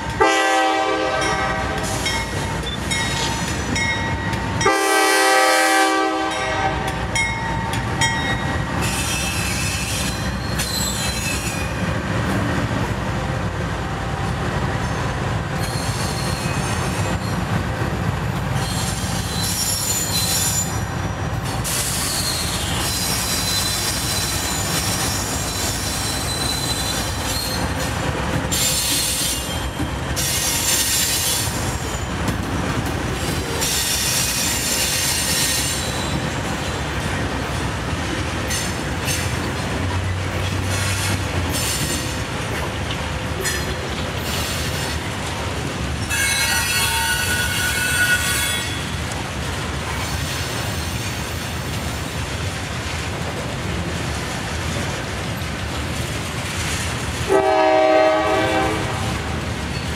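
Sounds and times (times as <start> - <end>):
wheels squealing on rails: 0.0 - 12.5, 14.7 - 52.3, 54.8 - 59.9
freight train rolling by: 0.0 - 59.9
train horn blast: 0.2 - 2.1, 4.6 - 7.2, 46.1 - 48.8, 57.3 - 59.4.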